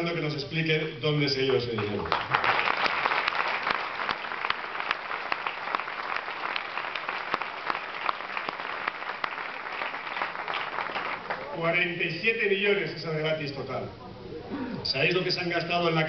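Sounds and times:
crowd applauding: 1.5 - 11.9.

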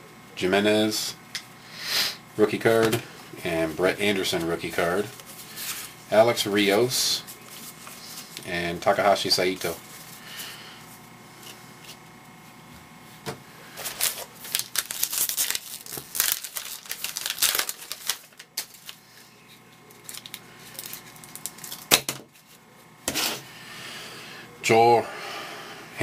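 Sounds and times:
wrapper tearing and rustling: 13.8 - 19.0, 19.9 - 22.6.

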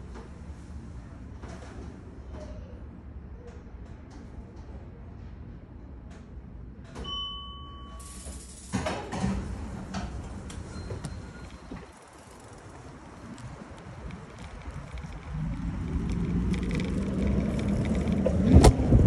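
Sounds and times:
automatic doors sliding open: 7.9 - 12.0, 14.7 - 19.0
bicycle rolling out: 8.0 - 19.0.

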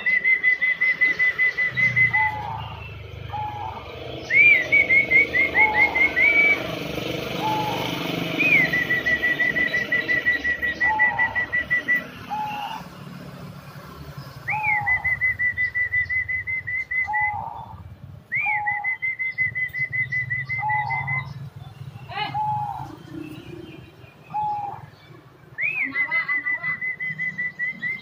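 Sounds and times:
dove cooing: 0.0 - 13.3, 14.4 - 23.4, 24.3 - 25.0
high whistled phrases: 4.3 - 6.7, 8.4 - 12.8, 14.5 - 17.4, 25.6 - 28.0.

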